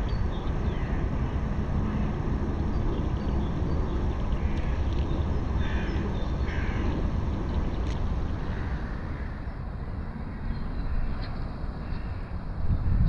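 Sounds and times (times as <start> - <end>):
harsh bird calls: 0.0 - 12.4
steady low rumble: 0.0 - 13.0.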